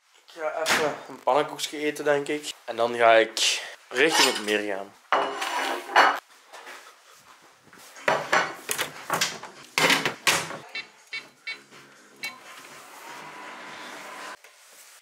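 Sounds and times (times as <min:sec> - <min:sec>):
cutlery and dishes clattering: 0:04.1 - 0:04.6, 0:05.2 - 0:06.2.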